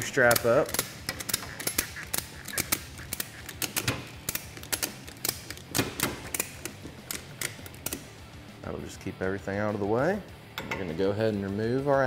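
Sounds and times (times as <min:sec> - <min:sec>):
ratchet strap clicking: 0:00.0 - 0:08.1.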